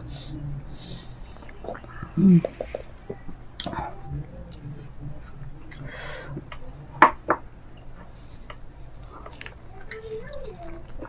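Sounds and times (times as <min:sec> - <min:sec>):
soft chewing: 0:07.7 - 0:11.0.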